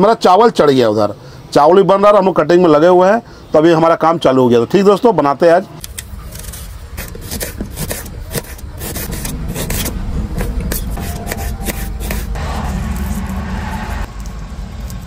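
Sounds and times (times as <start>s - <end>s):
knife scraping garlic: 6.2s - 13.4s
knife cutting onions: 6.3s - 13.4s
low hum: 8.6s - 15.0s.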